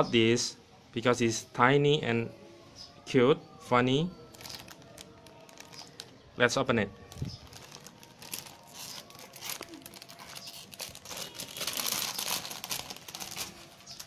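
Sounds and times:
plastic bag crinkling: 4.3s - 6.1s, 7.0s - 14.0s.

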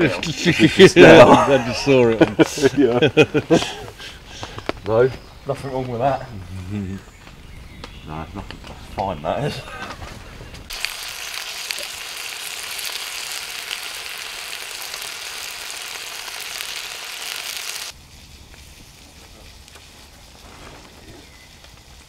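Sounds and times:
sausages and bacon sizzling in a pan: 10.7s - 18.0s.

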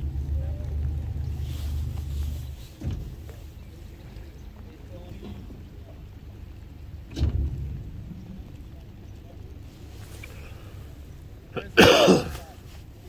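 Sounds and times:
low thump: 2.7s - 3.5s, 7.1s - 8.6s.

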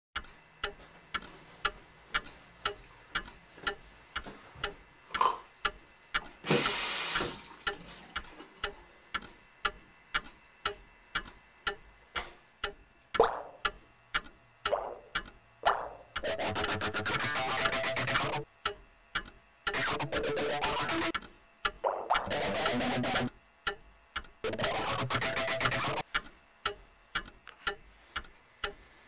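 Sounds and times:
wall clock ticking: 0.2s - 29.0s
tap water running: 6.4s - 8.3s.

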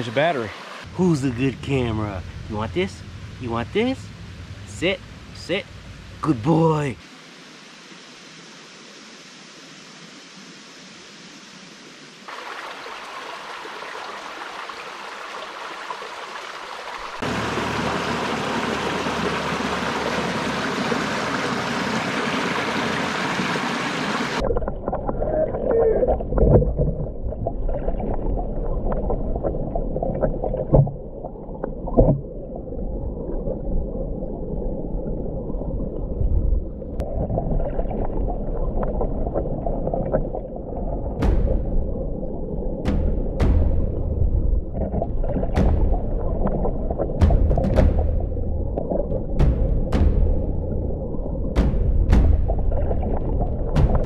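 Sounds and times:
creek water running: 0.0s - 32.3s, 37.0s - 54.0s
underwater gurgling wash: 16.9s - 54.0s
underwater knocks: 30.2s - 31.0s, 31.9s - 32.3s, 42.8s - 50.7s, 51.5s - 54.0s.

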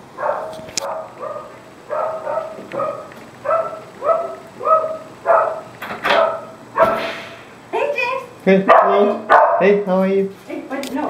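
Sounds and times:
dog barking: 0.2s - 7.0s, 8.7s - 9.8s.

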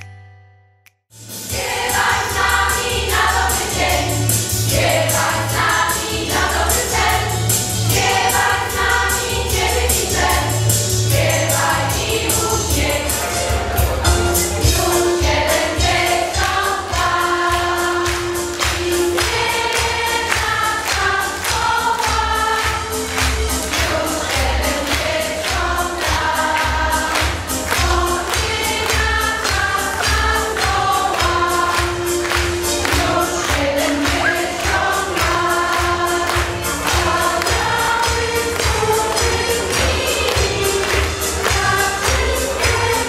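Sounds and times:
women's choir singing: 1.5s - 13.6s, 14.6s - 43.0s.

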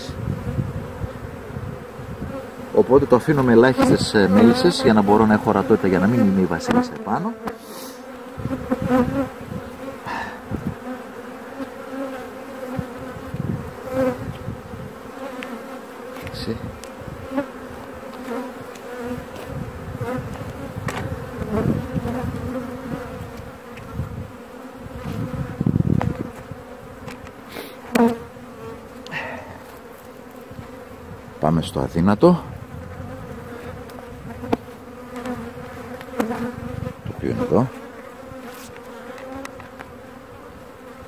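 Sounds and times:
bees buzzing: 0.0s - 41.0s
thumps and knocks from handling: 20.3s - 21.1s.

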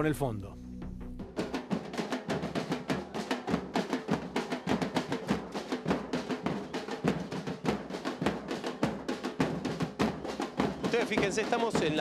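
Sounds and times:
bass drums beating: 0.0s - 1.7s
snare drums: 1.1s - 12.0s.

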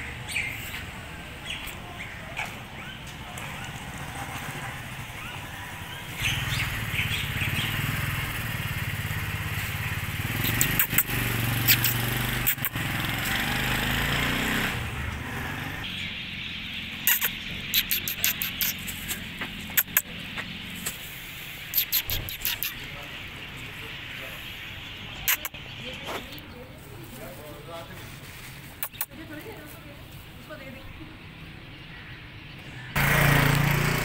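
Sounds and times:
vehicle engine running: 3.1s - 25.6s, 32.9s - 34.0s
sharp clicks: 10.4s - 12.8s, 17.0s - 20.1s, 21.7s - 22.9s, 25.3s - 25.6s, 28.8s - 29.1s.

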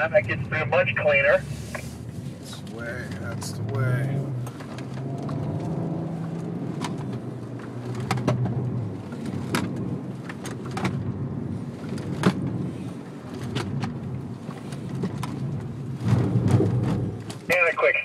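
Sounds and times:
car engine running: 0.0s - 18.0s
sharp knocks and clicks: 6.3s - 8.6s.

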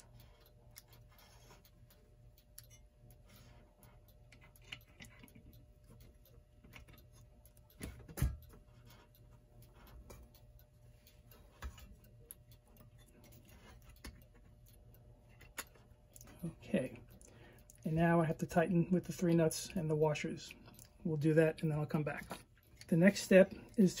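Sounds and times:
clock parts clicking: 0.0s - 16.4s.

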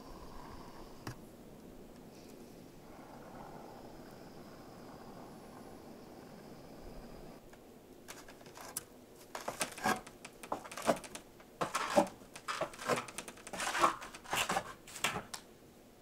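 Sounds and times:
boots on wooden ladder rungs: 8.1s - 15.4s
clothing rustling: 8.1s - 15.4s.

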